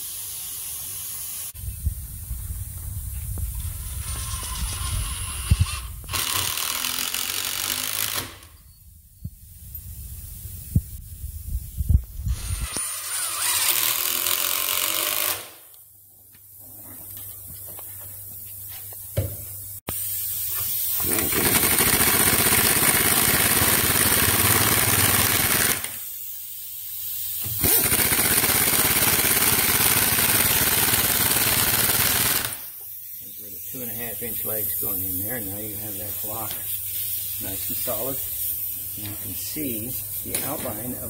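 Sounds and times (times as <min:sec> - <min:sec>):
pneumatic impact wrench bursts: 0:00.0 - 0:01.6, 0:03.5 - 0:08.7, 0:12.2 - 0:15.8, 0:19.9 - 0:33.2.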